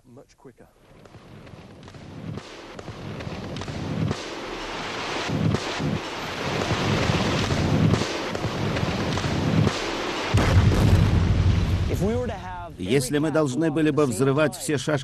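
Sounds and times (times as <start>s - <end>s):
rolling rock-blasting explosions: 0.8s - 13.0s.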